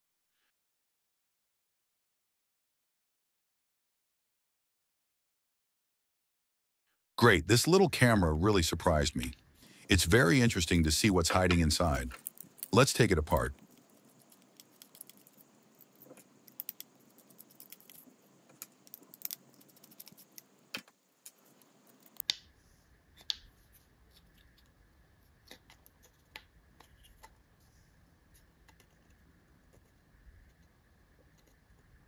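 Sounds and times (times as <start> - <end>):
screwdriver and tiny screws clicking: 12.0 - 22.3.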